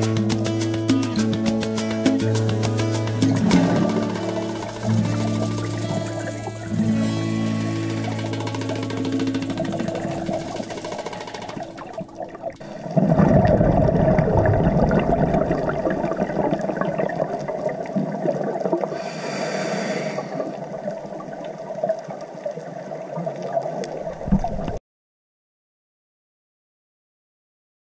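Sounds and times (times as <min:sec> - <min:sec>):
exhaled bubbles gurgling underwater: 0:08.6 - 0:24.8
regulator inhale hiss: 0:18.9 - 0:20.6.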